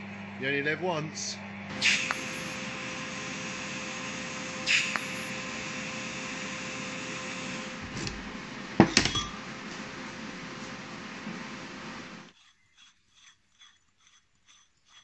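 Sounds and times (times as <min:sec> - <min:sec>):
welding arc buzzing: 0:01.6 - 0:12.4
arc crackle: 0:01.7 - 0:12.9.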